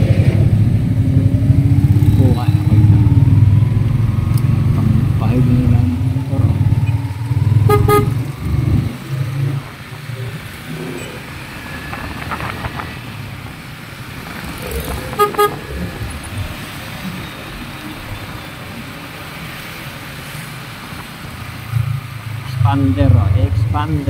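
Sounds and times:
wind rumble: 0.0 - 18.4
motorcycle engine on wet road: 0.0 - 24.0
vehicle horn toots: 7.6 - 8.3, 15.2 - 15.7.

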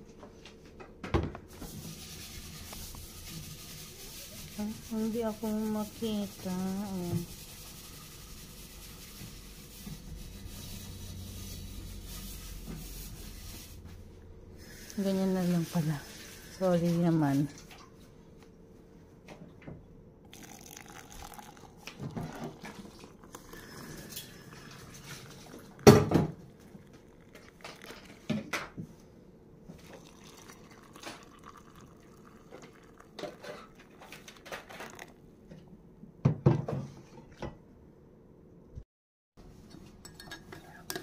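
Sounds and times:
hot water pouring into mugs: 1.5 - 9.8, 20.3 - 28.6, 29.7 - 35.2
clinks of kettle mugs and spoon: 39.7 - 41.0.

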